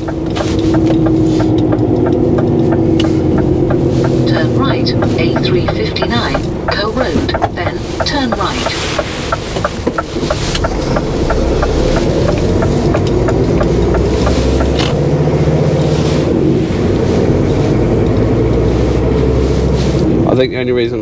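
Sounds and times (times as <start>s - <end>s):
fast even ticking: 0.0s - 15.6s
truck diesel engine running: 0.0s - 21.0s.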